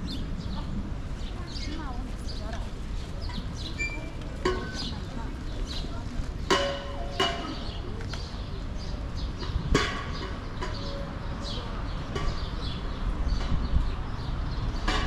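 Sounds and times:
low traffic rumble: 0.0s - 15.0s
small birds chirping: 7.1s - 14.9s.

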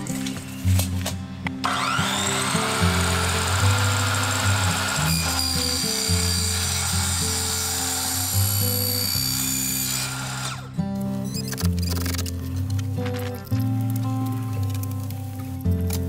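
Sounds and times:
miter saw cutting: 1.6s - 10.7s.

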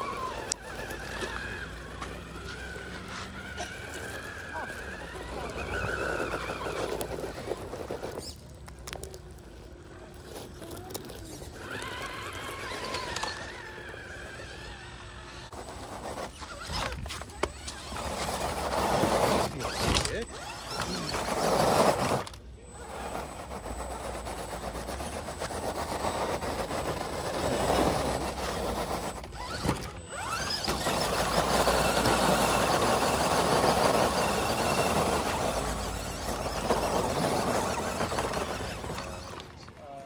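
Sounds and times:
electric motor and drivetrain whirring: 0.0s - 40.0s.

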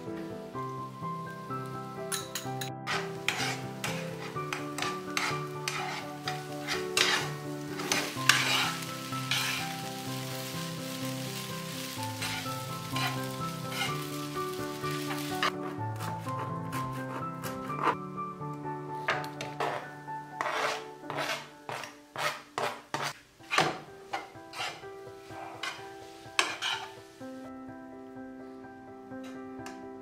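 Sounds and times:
metal fork scraping a pan: 2.1s - 9.7s, 12.2s - 14.2s, 15.1s - 15.6s, 19.1s - 27.0s
egg sizzling in a frying pan: 2.1s - 15.6s, 25.6s - 27.2s.

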